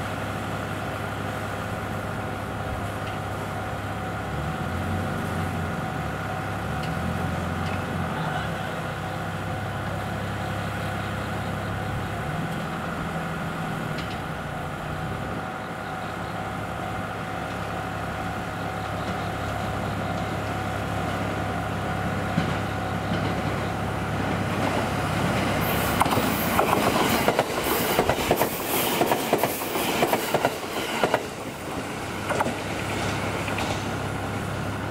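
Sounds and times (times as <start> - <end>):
diesel railcar engine running: 0.0 - 34.9
train wheels clattering over rails: 12.3 - 14.5, 22.1 - 34.9.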